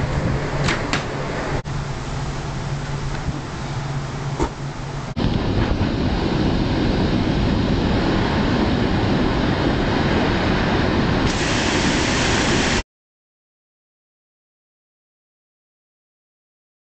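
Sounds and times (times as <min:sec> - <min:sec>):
water rushing over a weir: 0:00.0 - 0:12.8.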